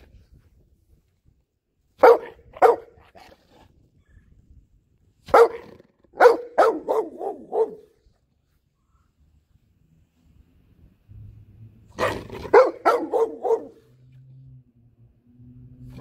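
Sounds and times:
dog barking: 2.0s - 3.3s, 5.3s - 8.0s, 12.0s - 13.9s.

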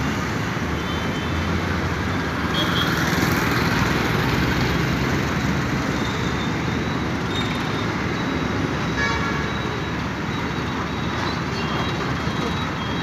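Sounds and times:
road traffic: 0.0s - 13.0s
vehicle horn toot: 9.0s - 9.5s.

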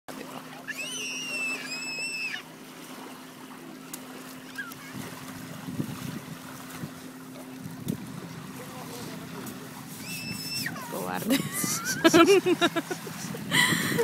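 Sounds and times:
steady low hum: 0.1s - 14.0s
child's high-pitched squeal: 0.7s - 2.4s, 4.5s - 5.0s, 10.0s - 11.0s.

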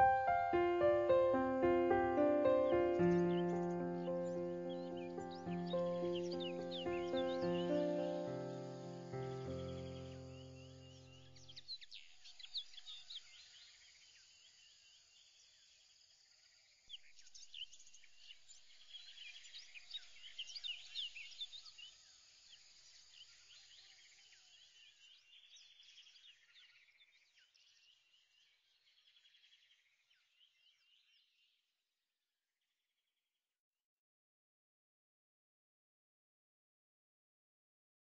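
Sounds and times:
faint birds chirping: 0.0s - 15.8s.

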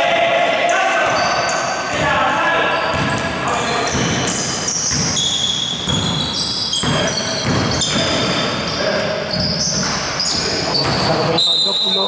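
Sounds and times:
players' voices: 0.0s - 4.8s, 6.7s - 12.0s
basketball dribbling on hardwood: 3.9s - 6.2s, 6.8s - 8.5s.

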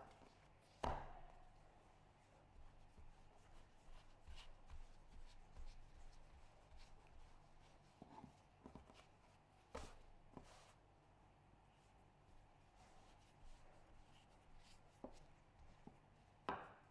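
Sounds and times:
rolling pin rubbing on dough: 2.2s - 10.8s.

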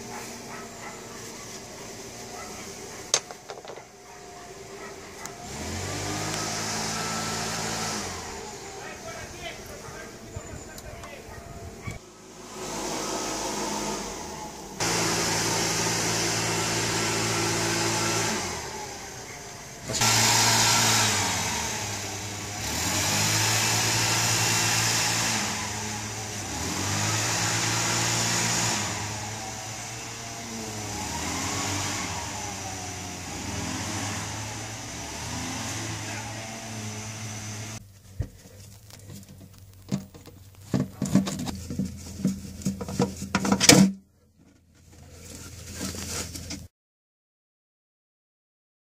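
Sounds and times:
boat engine revving: 4.6s - 11.0s, 11.8s - 37.8s.

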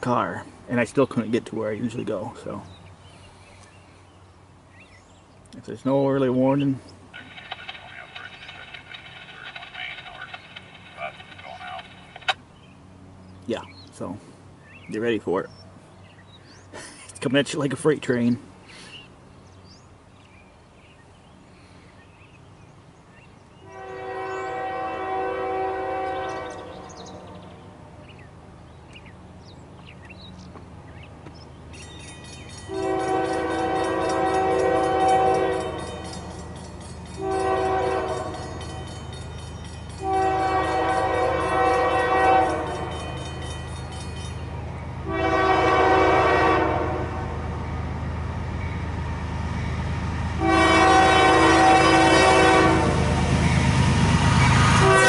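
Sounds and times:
train rumbling: 5.6s - 18.6s, 22.4s - 55.0s
train horn blasts: 23.6s - 27.4s, 32.7s - 36.1s, 37.2s - 38.6s, 40.0s - 43.0s, 45.0s - 47.5s, 50.4s - 53.4s, 54.6s - 55.0s.

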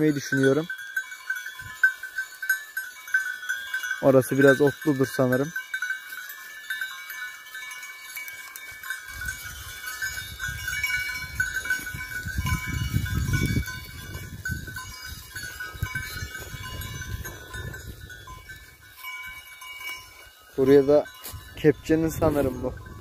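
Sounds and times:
sheep bells tinkling: 0.0s - 23.0s
wind buffeting microphone: 8.7s - 23.0s.

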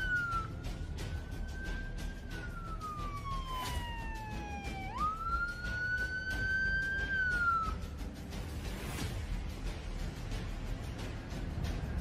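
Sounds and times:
emergency vehicle siren wailing: 0.0s - 8.0s.

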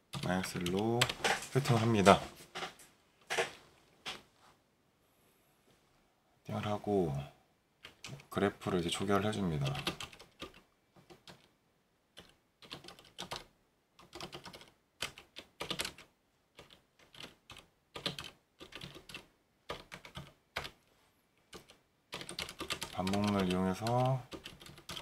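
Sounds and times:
computer keyboard typing: 0.1s - 2.2s, 7.8s - 8.3s, 9.6s - 11.5s, 12.2s - 20.8s, 21.5s - 25.0s.

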